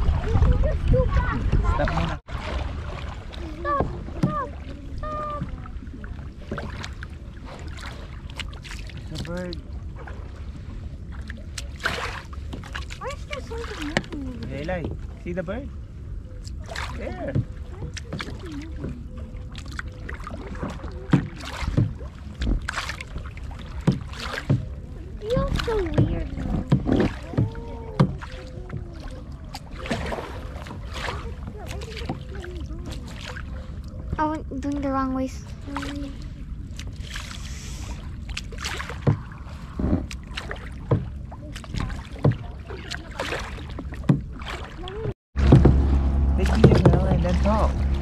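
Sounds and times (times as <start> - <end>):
paddle splashing in water: 0.0 - 15.3, 16.4 - 48.0
low rumble: 45.0 - 48.0
sharp knocks: 45.4 - 48.0.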